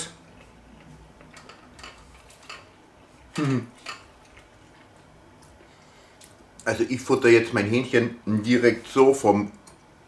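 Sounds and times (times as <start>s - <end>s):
person making short vocal sound: 3.4s - 3.8s.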